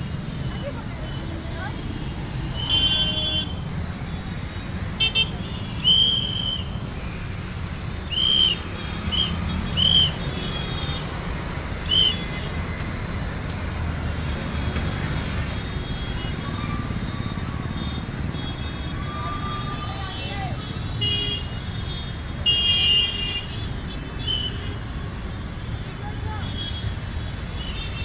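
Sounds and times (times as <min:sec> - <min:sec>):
passing traffic rumble: 0:00.0 - 0:21.0
traffic whistle blasts: 0:05.0 - 0:07.4, 0:08.0 - 0:11.0, 0:11.8 - 0:12.5.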